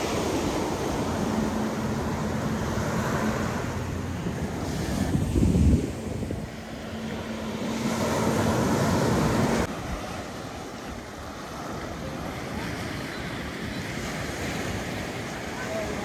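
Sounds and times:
wind on microphone: 0.0s - 11.2s
waves washing on beach: 0.0s - 16.0s.

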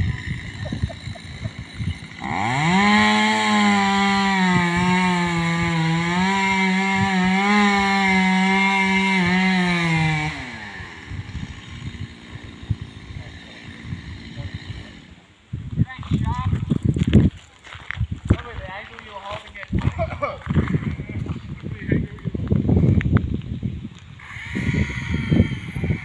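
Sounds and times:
chainsaw engine revving: 0.0s - 15.2s, 24.2s - 26.0s.

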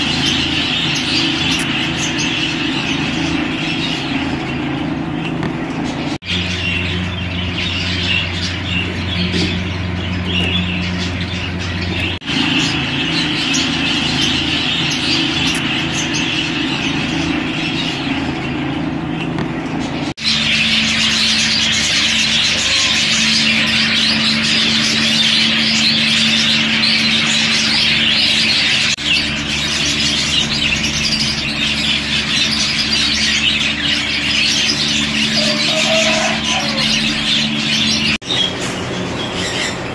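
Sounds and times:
budgerigars chattering: 0.0s - 39.9s
steady low hum: 0.0s - 39.9s.

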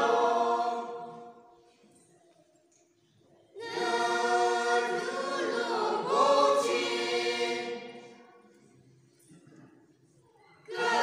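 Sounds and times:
group singing unaccompanied: 0.0s - 1.6s, 3.6s - 8.4s, 10.6s - 11.0s.

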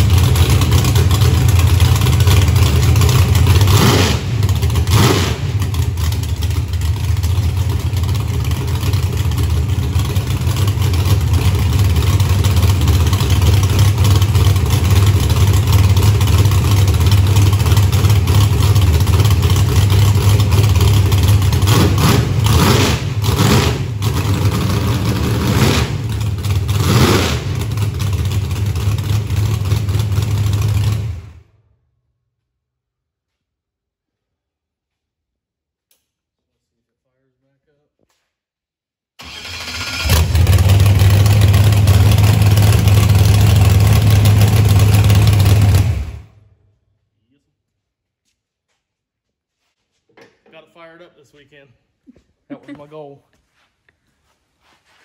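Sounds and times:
car engine idling and revving: 0.0s - 31.5s, 39.2s - 46.5s.

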